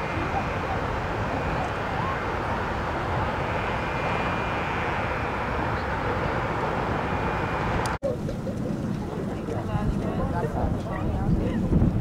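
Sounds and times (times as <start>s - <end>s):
road traffic rushing: 0.0s - 9.4s.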